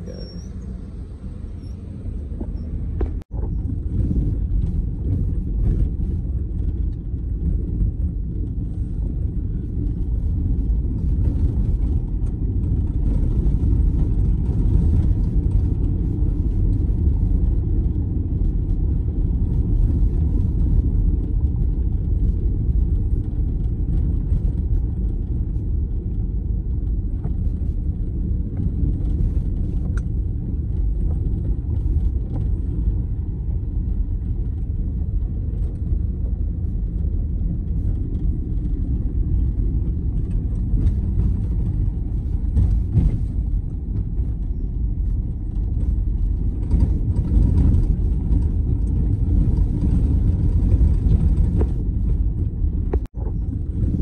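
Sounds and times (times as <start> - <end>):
tyres rumbling on gravel: 0.0 - 54.0.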